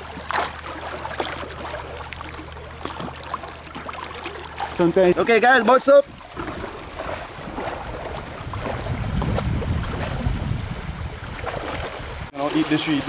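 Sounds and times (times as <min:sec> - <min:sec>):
boat rushing through water: 0:00.0 - 0:13.0
wind buffeting microphone: 0:06.0 - 0:12.4.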